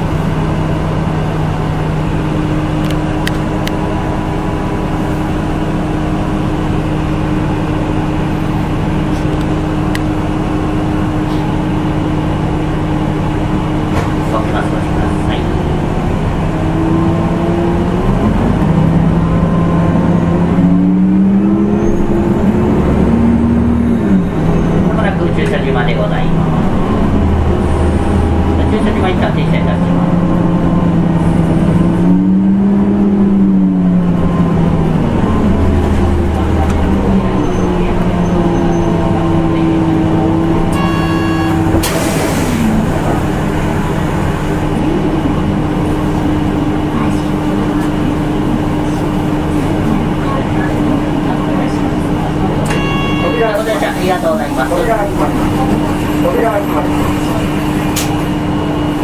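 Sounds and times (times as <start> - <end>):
bus engine running: 0.0 - 59.0
brief electronic tone: 40.7 - 41.7, 52.7 - 53.9.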